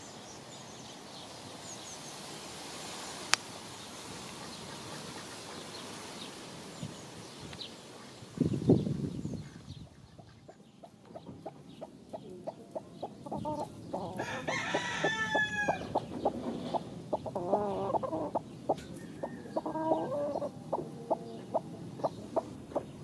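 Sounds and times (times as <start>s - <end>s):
chickens clucking: 9.5s - 23.0s
rooster crowing: 14.0s - 16.1s, 17.4s - 21.9s.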